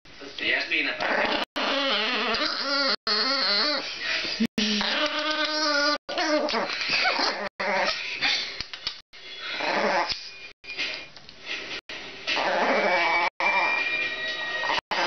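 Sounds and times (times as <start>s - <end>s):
small dog growling: 1.0s - 3.9s, 4.7s - 8.0s, 9.6s - 10.2s, 12.3s - 13.8s.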